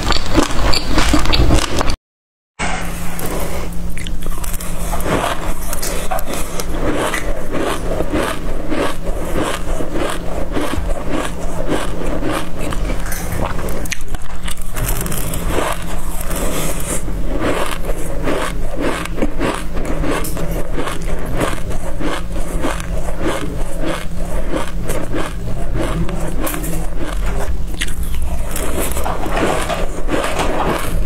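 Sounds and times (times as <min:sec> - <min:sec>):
chewing crunchy seeds: 0:00.0 - 0:01.9, 0:03.2 - 0:31.0
spoon scraping through seeds: 0:02.9 - 0:31.0.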